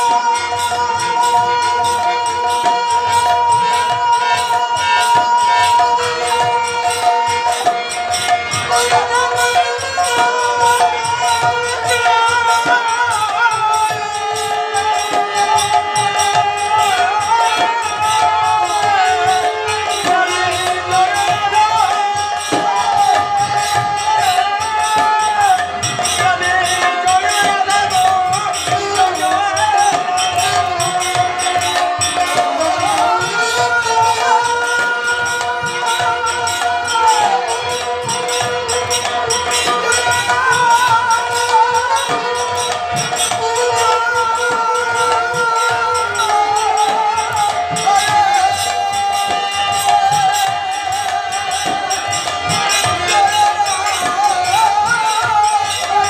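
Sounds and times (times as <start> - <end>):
hand cymbals: 0.0 - 56.0
harmonium melody: 0.0 - 56.0
man singing: 0.0 - 56.0.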